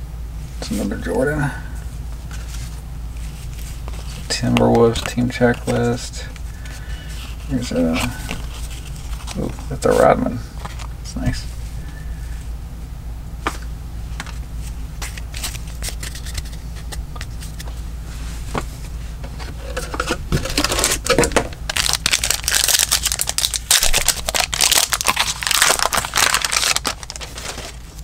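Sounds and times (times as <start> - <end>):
wrapper crinkling and tearing: 20.5 - 28.0.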